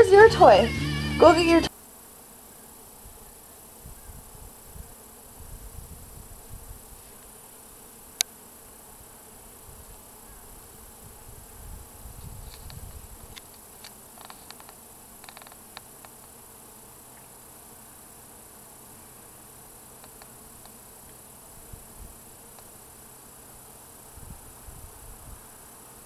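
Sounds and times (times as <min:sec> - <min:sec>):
wind rumbling on microphone: 0:03.8 - 0:07.1, 0:09.6 - 0:13.5, 0:24.1 - 0:25.5
faint ticks: 0:08.1 - 0:08.4, 0:12.2 - 0:16.4, 0:20.0 - 0:21.2, 0:22.5 - 0:22.8
sharp click: 0:20.0 - 0:20.8.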